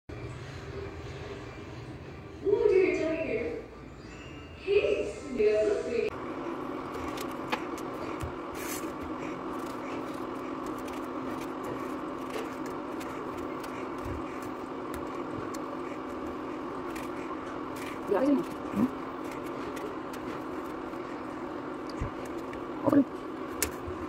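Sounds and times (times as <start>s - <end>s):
motor or fan humming: 5.4s - 24.0s.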